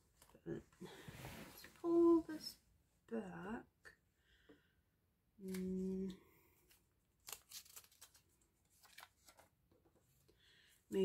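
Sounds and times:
woman humming: 0:05.4 - 0:06.2
plastic sleeves rustling: 0:06.5 - 0:10.3.

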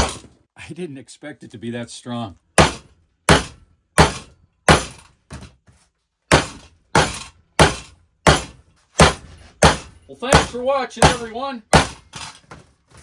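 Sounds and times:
hammer pounding plastic pipe: 0:02.5 - 0:13.0.

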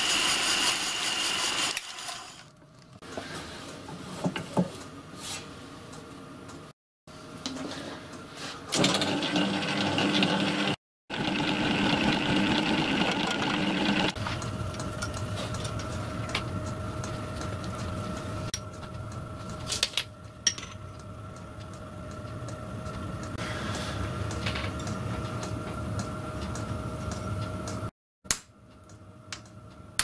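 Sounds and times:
milling machine humming: 0:08.8 - 0:19.6.

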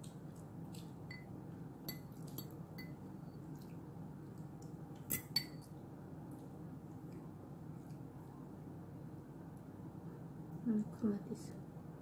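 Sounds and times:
fork clinking on ceramic plates: 0:05.1 - 0:05.7.

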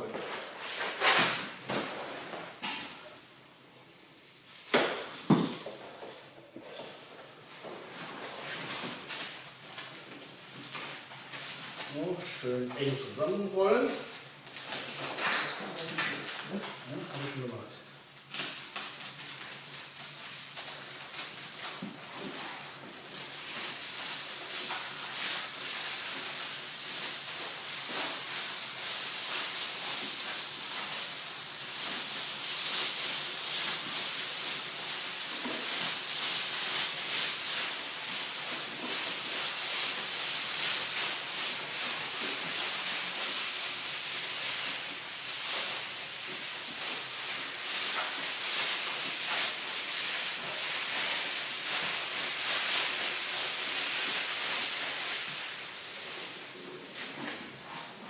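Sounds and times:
rush mat rustling and scraping: 0:21.8 - 0:58.0.

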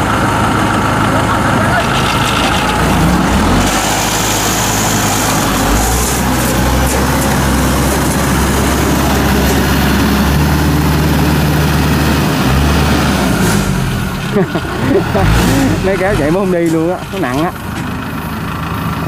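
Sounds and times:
tractor engine running hard: 0:00.0 - 0:19.0.

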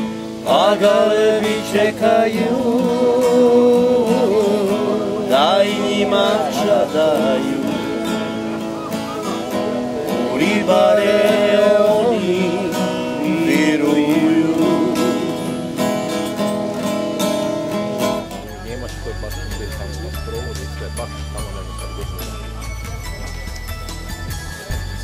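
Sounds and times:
acoustic guitar strummed: 0:00.0 - 0:25.0
man singing slowly: 0:00.1 - 0:08.7, 0:09.7 - 0:16.4.

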